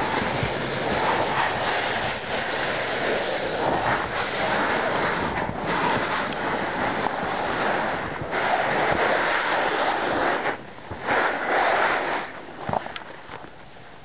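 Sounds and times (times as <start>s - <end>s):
wind on microphone: 0.0s - 14.0s.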